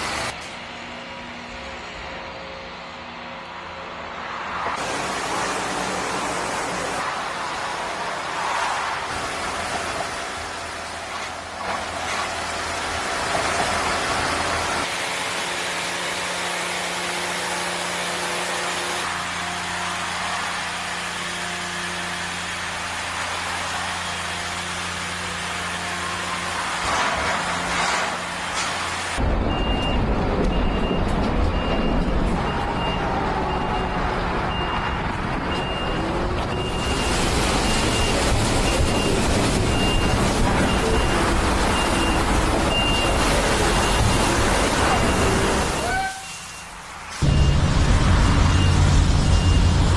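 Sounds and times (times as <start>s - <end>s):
paving machinery diesel drone: 0.0s - 49.9s
reversing alarm beeping: 29.4s - 49.9s
deep rumble: 47.2s - 49.9s.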